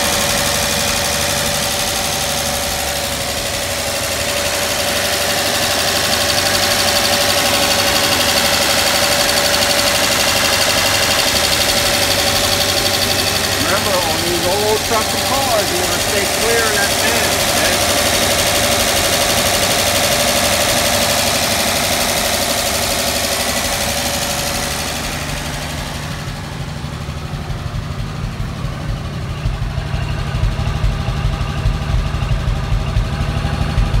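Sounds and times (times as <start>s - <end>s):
fan and belt hissing: 0.0s - 26.8s
pulsing exhaust note: 0.0s - 34.0s.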